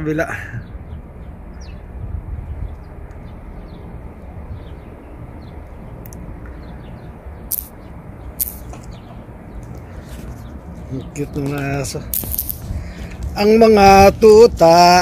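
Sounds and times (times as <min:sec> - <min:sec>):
sharp clicks: 0:06.0 - 0:06.5, 0:07.5 - 0:07.8, 0:08.4 - 0:09.0, 0:12.2 - 0:13.2.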